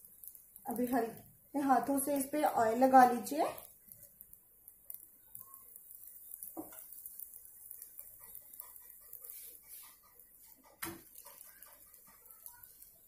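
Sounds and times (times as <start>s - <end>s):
spoon scraping on hot griddle: 3.6s - 13.0s.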